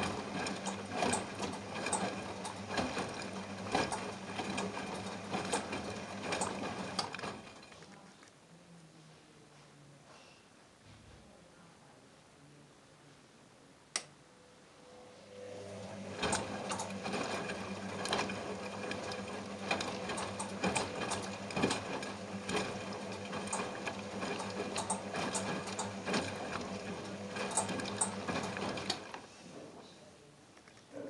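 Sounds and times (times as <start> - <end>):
washing machine motor humming: 0.0 - 8.1, 14.3 - 29.8.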